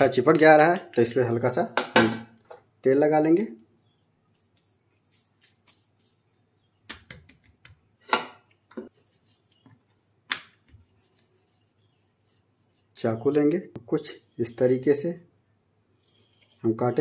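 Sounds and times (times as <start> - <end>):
hands patting dough: 6.8 - 7.8.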